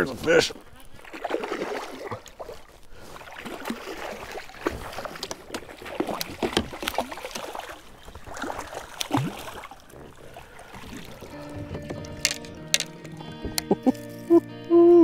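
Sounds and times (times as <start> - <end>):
fish thrashing and splashing water: 0.5 - 14.2.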